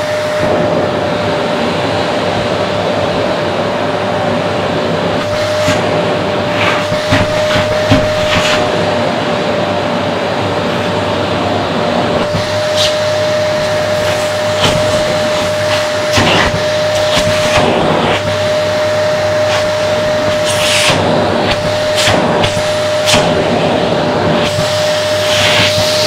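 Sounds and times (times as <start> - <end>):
vacuum cleaner whining: 0.0 - 26.0.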